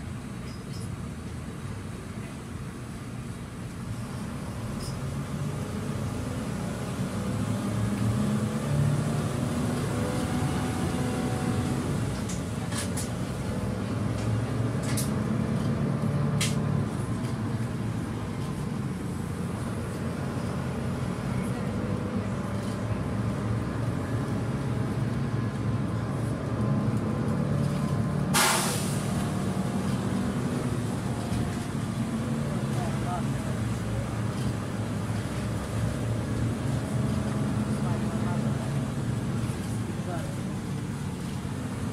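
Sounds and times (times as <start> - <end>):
bus engine and road drone: 0.0 - 41.9
compressed air hiss: 28.4 - 29.2.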